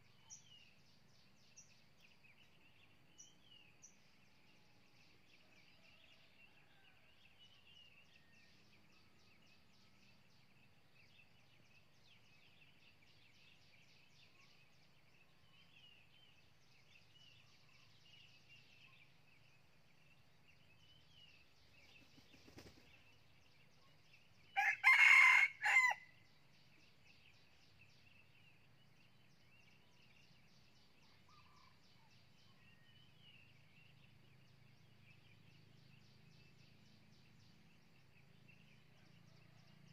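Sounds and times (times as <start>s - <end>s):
rooster crowing: 24.6s - 26.1s.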